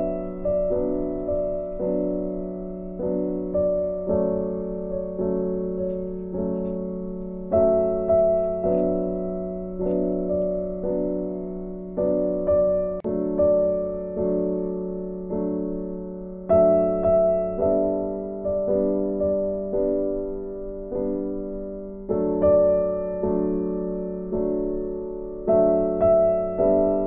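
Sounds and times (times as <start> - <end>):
soft piano chords: 0.0 - 27.0.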